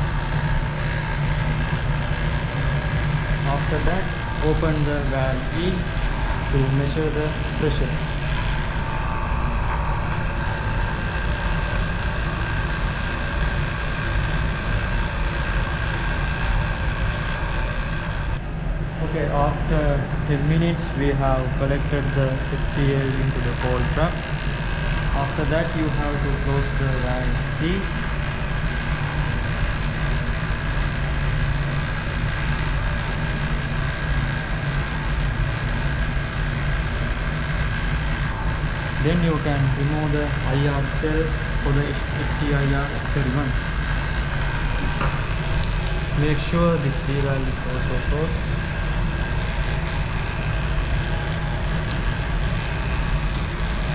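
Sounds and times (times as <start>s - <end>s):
machinery humming: 0.0s - 53.9s.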